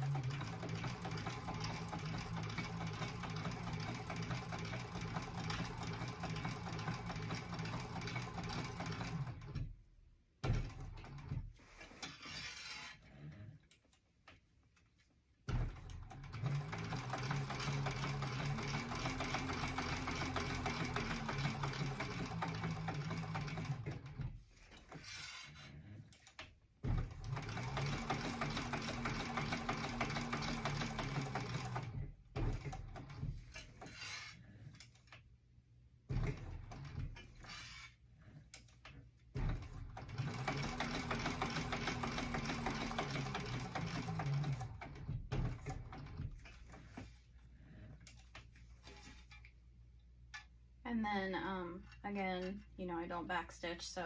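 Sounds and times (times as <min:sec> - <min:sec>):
industrial sewing machine stitching: 0:00.0 - 0:09.7, 0:15.5 - 0:25.6, 0:26.2 - 0:34.3, 0:36.1 - 0:38.0, 0:39.3 - 0:46.8.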